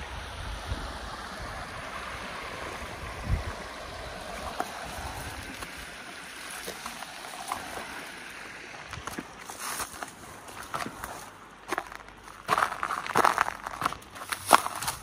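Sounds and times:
wind gust on microphone: 0:00.0 - 0:06.1
river water running over rocks: 0:00.0 - 0:15.0.

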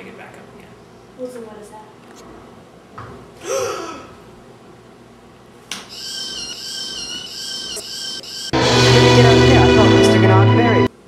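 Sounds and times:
person gasping: 0:03.4 - 0:04.1
steady high tones: 0:05.9 - 0:11.0
music hit: 0:08.6 - 0:10.9.

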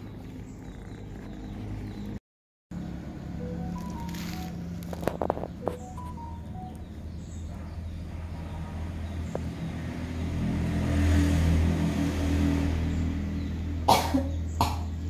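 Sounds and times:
vehicle passing by: 0:02.8 - 0:15.0.

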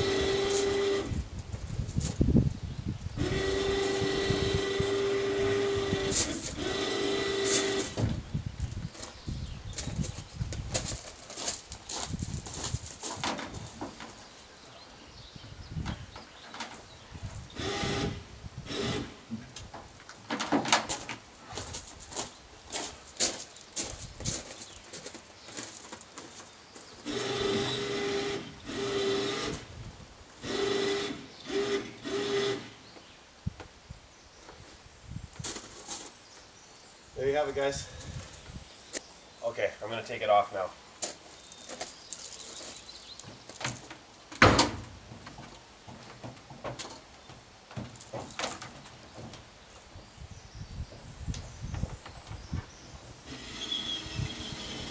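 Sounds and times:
footsteps on gravel: 0:08.6 - 0:14.3, 0:20.9 - 0:27.1, 0:35.4 - 0:36.2, 0:41.0 - 0:43.9
loud clunk of stepping up: 0:44.4 - 0:45.4.

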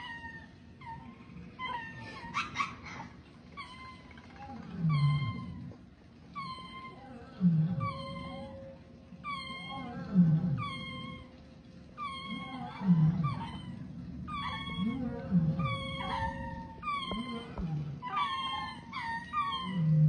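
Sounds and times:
low falling animal calls: 0:00.0 - 0:20.0
high chirping animal calls: 0:12.0 - 0:19.9.

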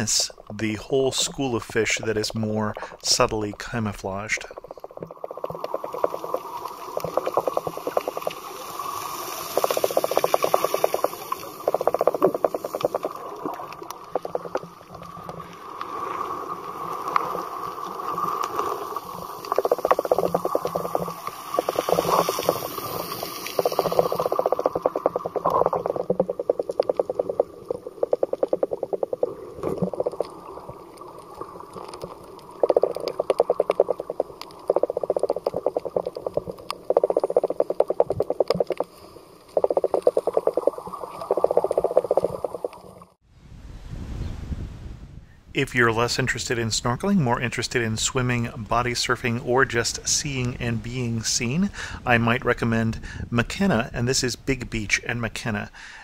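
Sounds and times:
underwater crackling: 0:00.0 - 0:43.2.

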